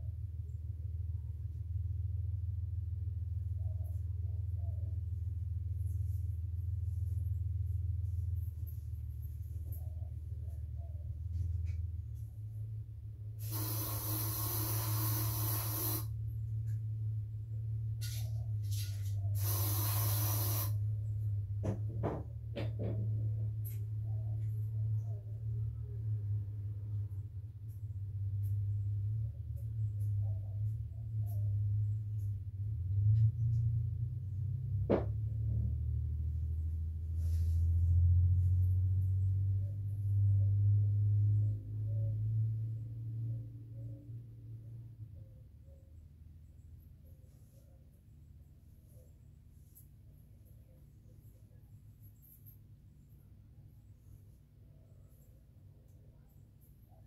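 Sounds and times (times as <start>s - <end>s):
constant low hum: 0.0s - 57.0s
steady hiss: 13.4s - 16.1s, 19.4s - 20.8s.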